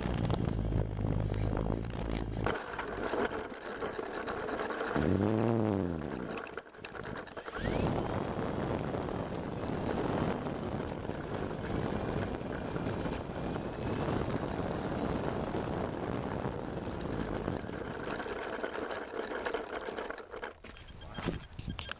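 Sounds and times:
low rumbling on microphone: 0.0s - 2.5s.

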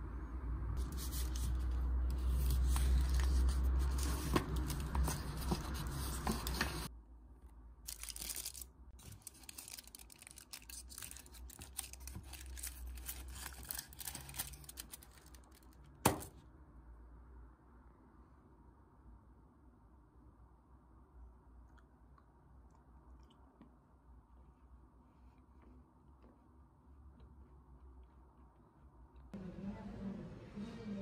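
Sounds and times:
foil and paper wrapper crinkling: 7.9s - 15.9s.

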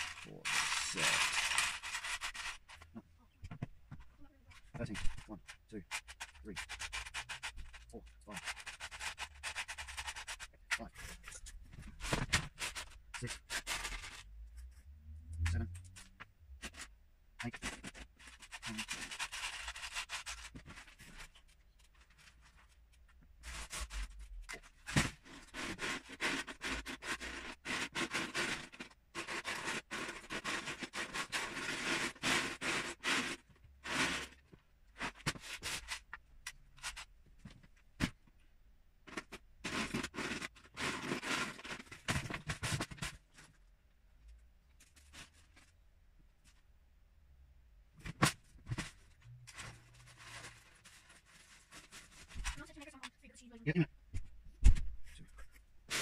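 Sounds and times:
plastic bricks clattering in a tub: 0.0s - 2.8s.

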